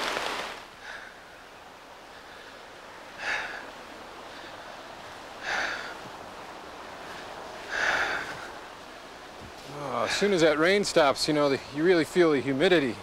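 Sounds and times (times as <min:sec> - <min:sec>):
steady hiss: 0:00.0 - 0:13.0
person breathing hard: 0:02.0 - 0:04.8, 0:05.4 - 0:06.2, 0:07.0 - 0:08.6.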